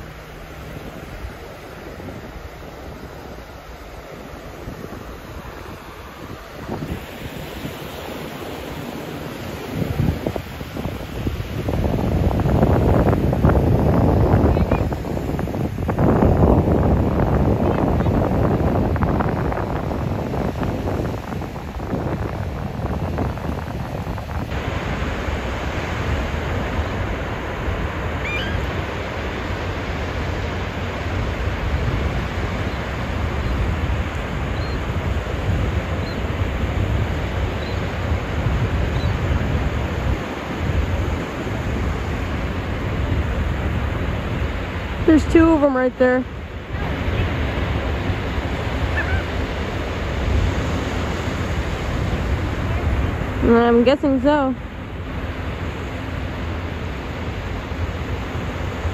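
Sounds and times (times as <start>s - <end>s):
ocean surf breaking: 0.0s - 58.9s
wind rumbling on microphone: 0.0s - 58.9s
faint high chirp: 28.2s - 28.7s, 34.6s - 34.8s.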